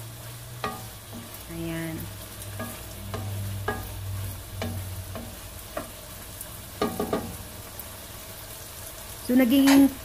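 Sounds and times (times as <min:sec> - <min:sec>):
wooden spatula scraping wok: 0:00.0 - 0:07.5
light sizzle: 0:00.0 - 0:10.0.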